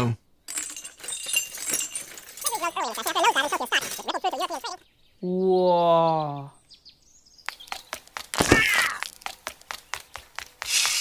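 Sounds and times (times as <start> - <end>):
pitched voice-like tone: 2.4 - 6.4.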